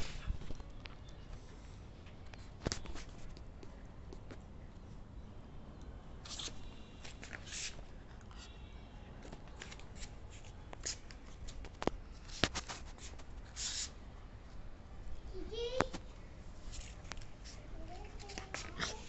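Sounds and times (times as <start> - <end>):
scratchy rustles: 6.3 - 7.9, 9.5 - 14.0, 16.6 - 19.0
puppy claws clicking on concrete: 18.0 - 19.0.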